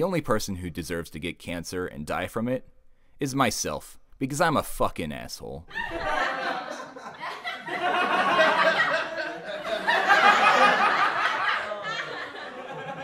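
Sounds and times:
audience laughing: 5.7 - 13.0.

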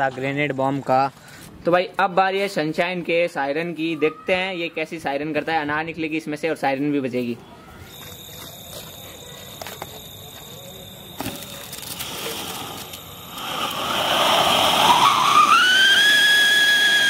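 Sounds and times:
shrill firework whistle: 7.6 - 17.0
firework fountain rushing hiss: 7.9 - 17.0.

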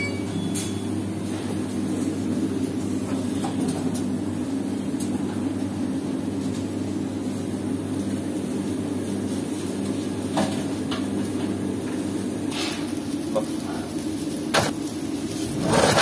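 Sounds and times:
low mechanical drone: 10.9 - 16.0.

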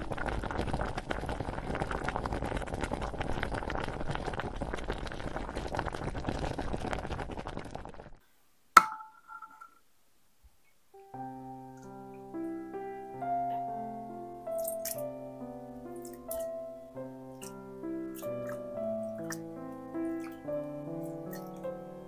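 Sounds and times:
water boiling hard in a pot: 0.0 - 8.2.

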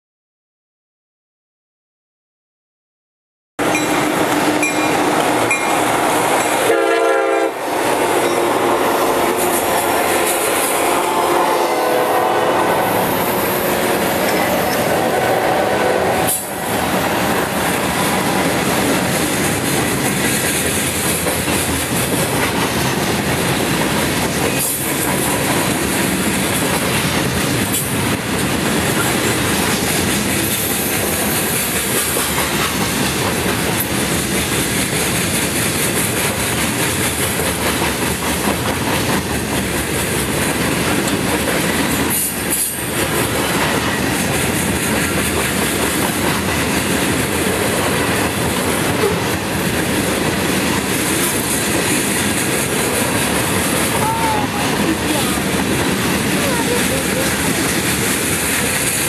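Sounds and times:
train wheels rumbling on rails: 3.6 - 59.0.

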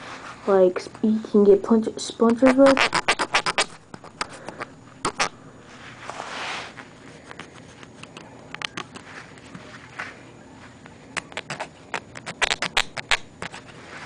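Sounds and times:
abrasive tool rubbing wood: 2.4 - 5.3.

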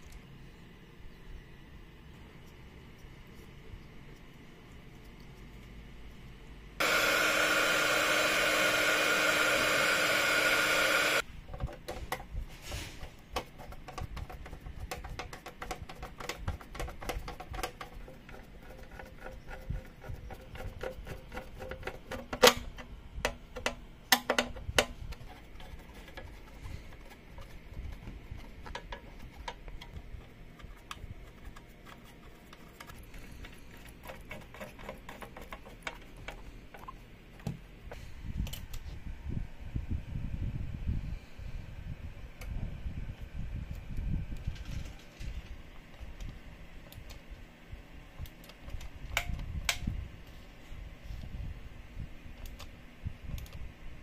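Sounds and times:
heat gun blowing: 6.8 - 11.2.

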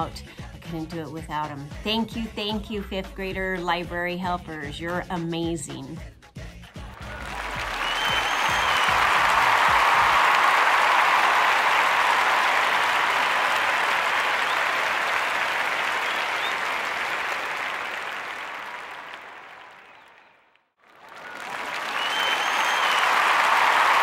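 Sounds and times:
crowd applauding: 6.7 - 24.0.

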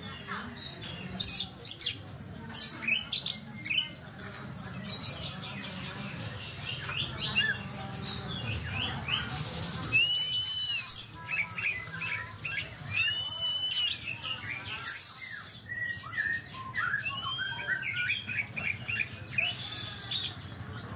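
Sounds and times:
bird singing chirps and whistles: 8.4 - 20.3.

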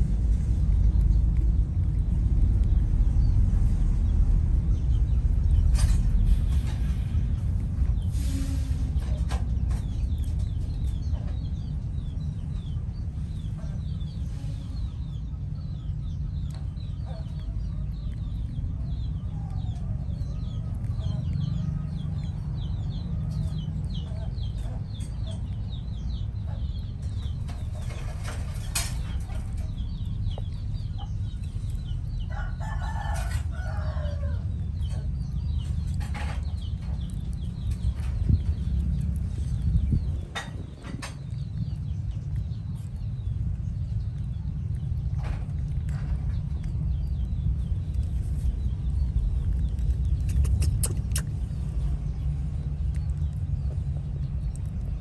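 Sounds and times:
low rumble: 0.0 - 55.0
bird chirps: 46.3 - 54.6.

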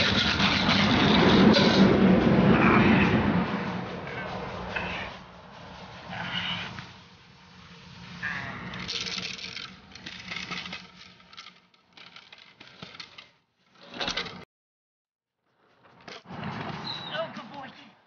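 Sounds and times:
scraping: 0.0 - 14.4.

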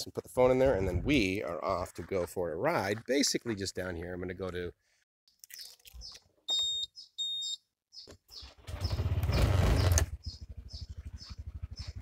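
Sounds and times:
short electronic beeps: 6.5 - 7.7
scooter engine starting and idling: 8.3 - 12.0.

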